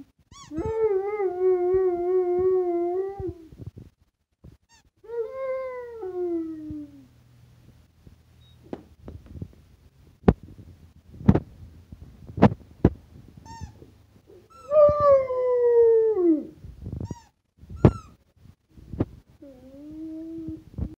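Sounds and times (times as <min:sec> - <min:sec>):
squeaky toy squeaks: 0:00.3 - 0:00.7, 0:04.6 - 0:05.0, 0:13.4 - 0:14.7, 0:17.0 - 0:18.2.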